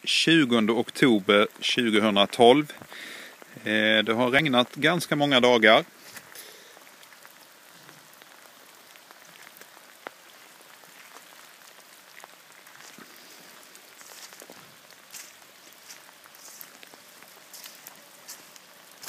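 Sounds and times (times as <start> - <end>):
steady rain hiss: 0.0 - 19.0
raindrop ticks: 0.5 - 19.0.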